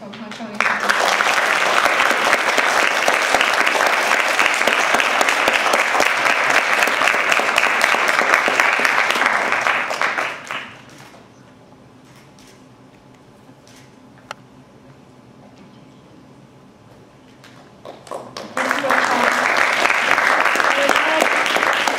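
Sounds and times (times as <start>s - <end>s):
audience applauding: 0.2s - 11.0s, 17.8s - 21.9s.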